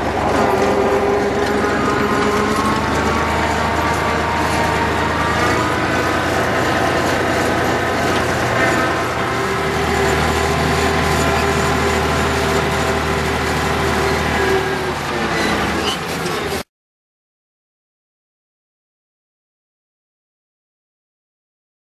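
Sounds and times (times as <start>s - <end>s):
tractor diesel engine running: 0.0s - 16.7s.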